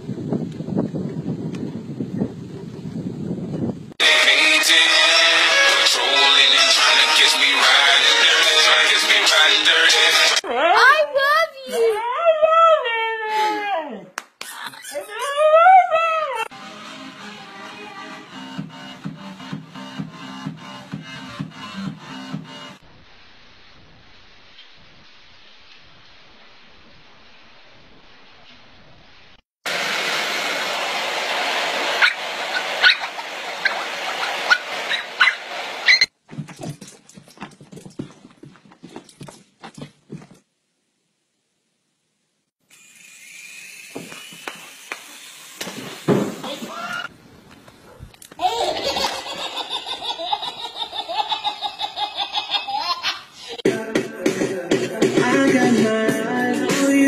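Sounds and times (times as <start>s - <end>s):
music with guitar and singing: 4.0s - 10.4s, 53.6s - 57.0s
baby laughing: 14.4s - 16.5s, 48.3s - 53.6s
small dog yapping: 32.0s - 36.1s.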